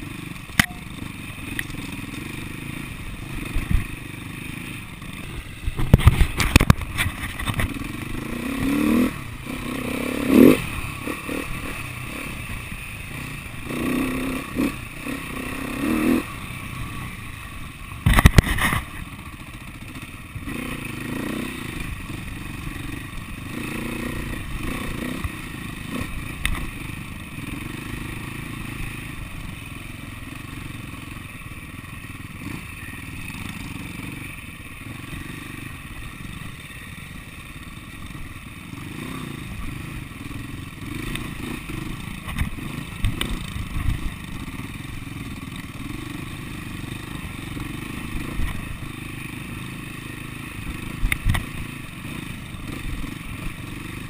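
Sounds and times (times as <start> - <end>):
motorbike engine revving: 0.0 - 29.5.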